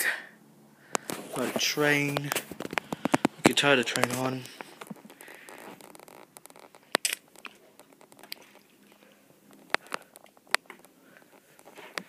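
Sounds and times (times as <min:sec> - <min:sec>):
plastic rustling: 0:01.0 - 0:12.0
small plastic clicks: 0:02.2 - 0:08.6, 0:09.5 - 0:12.0.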